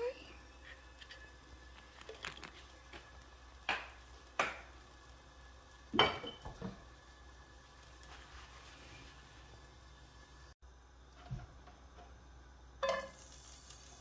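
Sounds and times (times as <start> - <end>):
kitchenware knocking on stovetop: 5.9 - 6.8.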